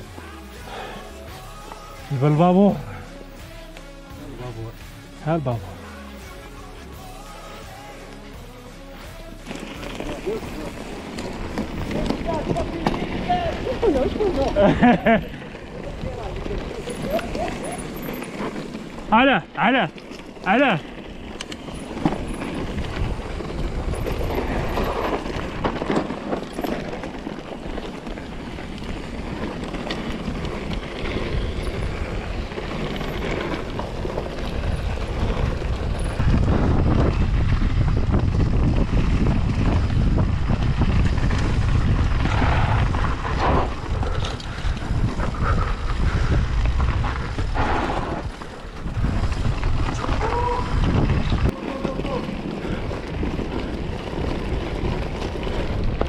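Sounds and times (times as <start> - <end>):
low rumbling wind noise: 9.7 - 56.0.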